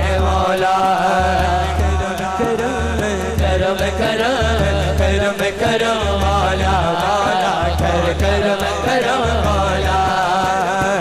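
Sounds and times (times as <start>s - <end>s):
man singing into microphone: 0.0s - 11.0s
percussion ticks: 0.0s - 11.0s.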